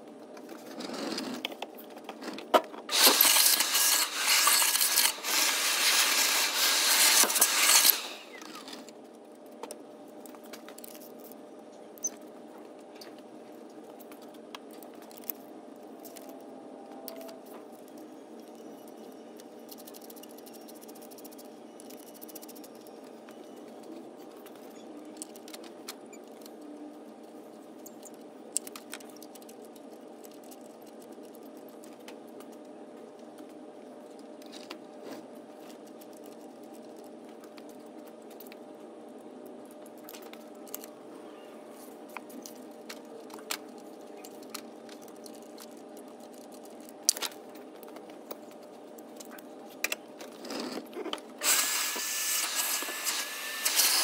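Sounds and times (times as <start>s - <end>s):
steady shop hum: 0.0s - 10.6s, 38.2s - 54.0s
shop vacuum running: 2.9s - 8.9s, 51.4s - 54.0s.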